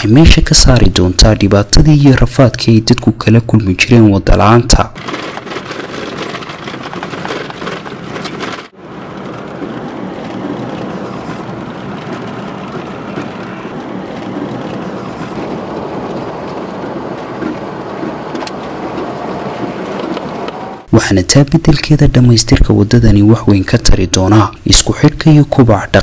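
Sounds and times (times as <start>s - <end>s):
car engine and road noise: 5.0s - 20.9s.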